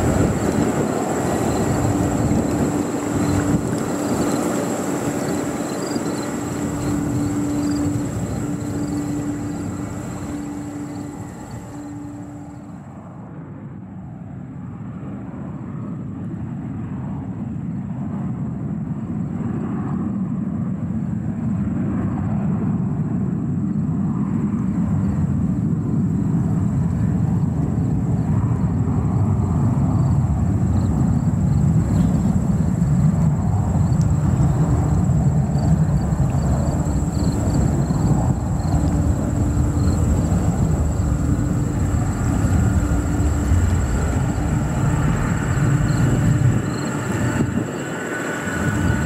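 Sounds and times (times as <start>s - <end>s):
jet engines rumbling: 0.0s - 49.0s.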